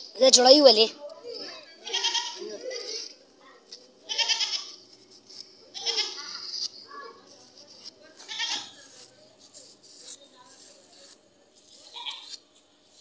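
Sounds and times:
goat bleating: 1.8s - 2.8s, 4.1s - 4.8s, 5.7s - 6.4s, 8.2s - 8.8s, 11.8s - 12.3s.

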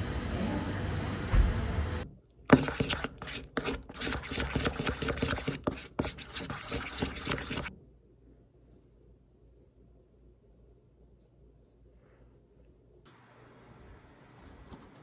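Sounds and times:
spatula scraping wet paste in bowl: 2.5s - 7.7s.

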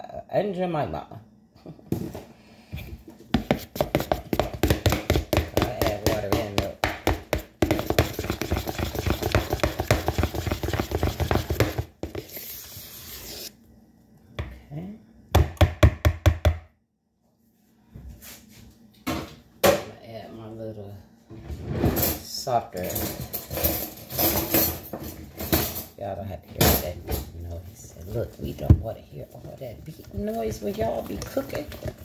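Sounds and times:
spoon beating batter in bowl: 3.4s - 13.5s, 29.8s - 32.0s.

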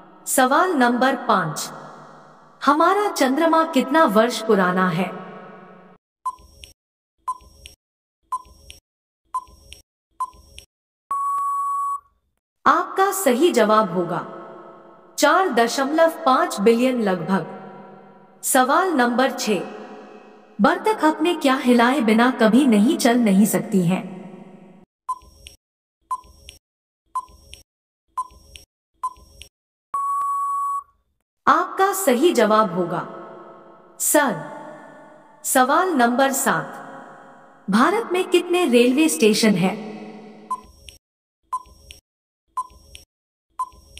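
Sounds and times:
countdown timer beeps: 11.1s - 12.0s, 30.0s - 30.9s, 40.4s - 40.7s
long steady beep: 11.1s - 12.1s, 30.0s - 30.9s.

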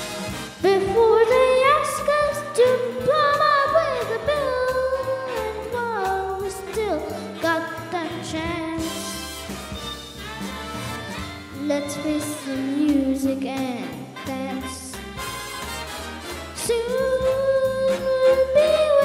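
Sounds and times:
instrumental accompaniment: 0.0s - 19.0s
child singing into microphone: 0.6s - 8.9s, 11.6s - 14.9s, 16.6s - 19.0s.

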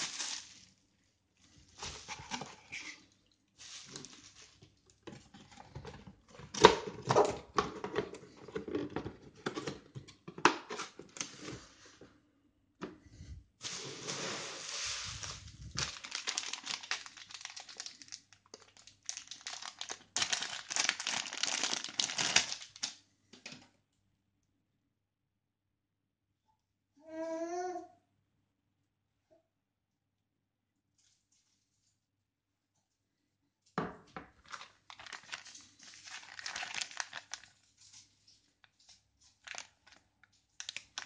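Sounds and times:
packaging crinkling: 0.0s - 0.8s, 3.6s - 4.8s, 13.6s - 23.0s, 34.4s - 41.0s.

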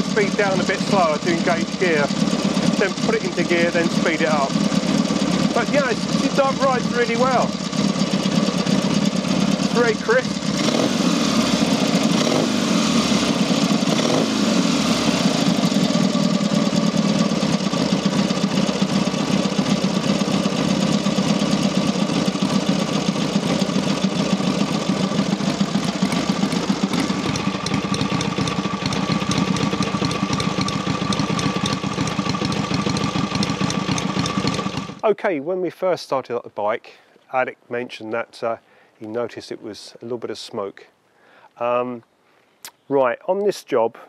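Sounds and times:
motorcycle engine idling: 0.0s - 35.0s.

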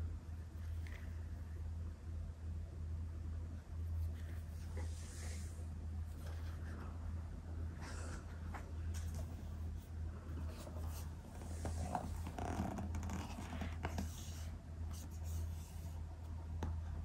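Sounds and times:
steady low hum: 0.0s - 17.0s
cardboard scraping and rubbing: 9.0s - 16.0s.

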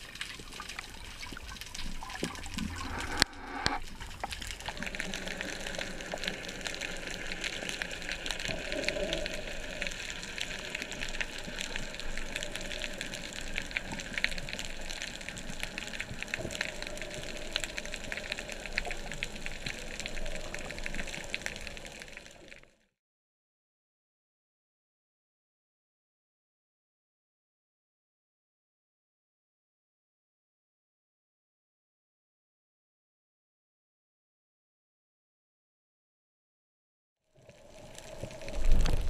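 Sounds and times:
steady underwater hiss: 2.0s - 22.7s, 37.4s - 39.0s.

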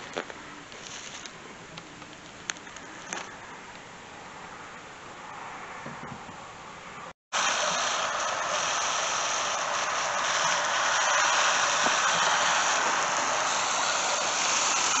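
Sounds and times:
garden hose spraying water: 7.3s - 15.0s.

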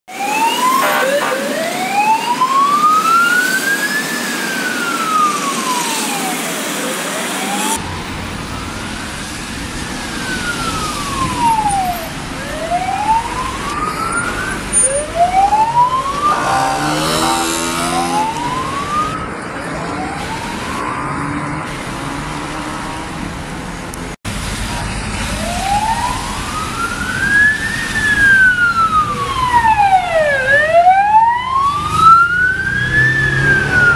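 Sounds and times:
tyres and engines of traffic: 0.0s - 33.9s
police siren wailing: 0.1s - 21.6s, 25.2s - 33.9s
steady horn-like tone: 0.6s - 1.9s, 16.2s - 18.4s.

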